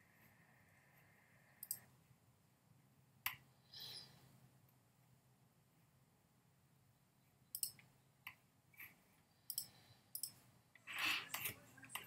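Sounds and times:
computer mouse clicking: 1.6s - 1.9s, 7.5s - 8.4s, 9.5s - 10.4s.

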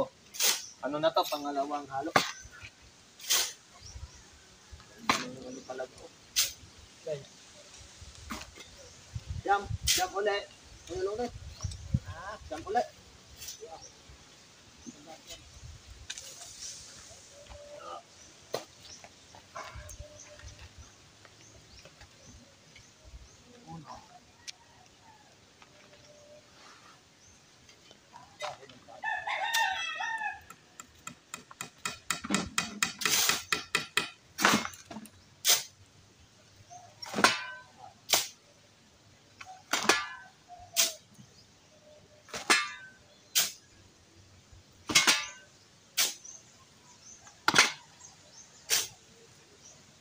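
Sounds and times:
shovel scraping concrete mix: 0.3s - 1.5s, 3.2s - 3.6s
rooster crowing: 29.0s - 30.7s.

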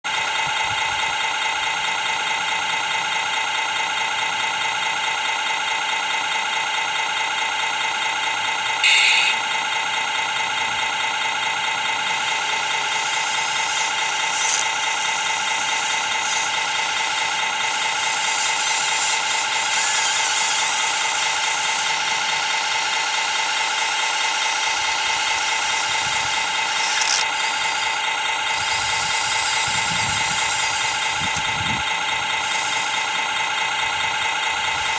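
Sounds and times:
brief sharp noise: 8.8s - 9.4s
electric motors whining: 8.8s - 9.7s, 11.4s - 34.9s.

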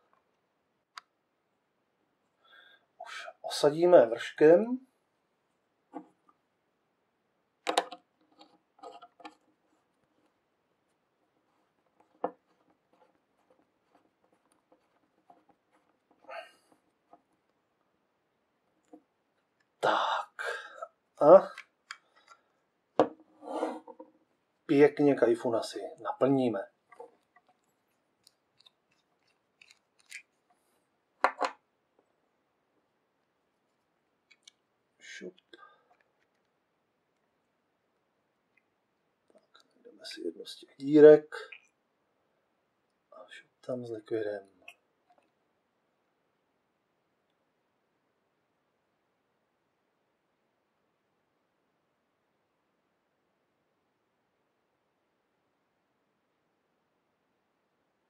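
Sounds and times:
faint clicks of small parts: 21.4s - 22.5s, 26.9s - 31.6s, 34.2s - 34.7s, 35.3s - 37.5s
small metal clicks: 26.9s - 30.3s.

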